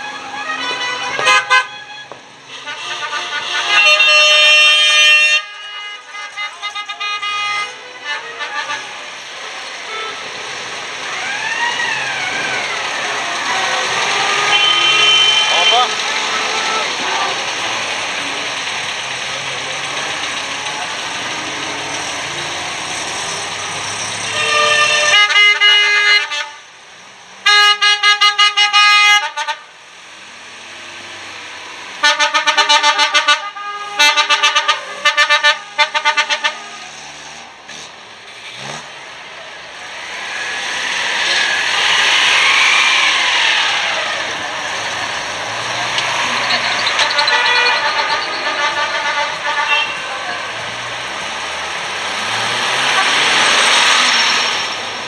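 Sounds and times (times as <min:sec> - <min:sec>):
musical car horn playing tune: 0:00.4 - 0:08.9, 0:14.3 - 0:15.8, 0:24.3 - 0:26.6, 0:46.0 - 0:50.0
passing car engines: 0:07.6 - 0:25.1, 0:29.8 - 0:32.1, 0:36.7 - 0:55.0
car horn pulses: 0:14.4 - 0:16.8, 0:46.0 - 0:50.2
cars driving slowly past: 0:36.9 - 0:55.0.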